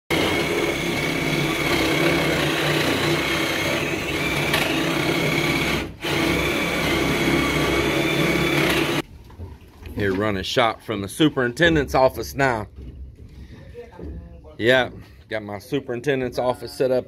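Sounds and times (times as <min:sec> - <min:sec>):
cordless drill drilling into concrete: 0:00.1 - 0:09.0.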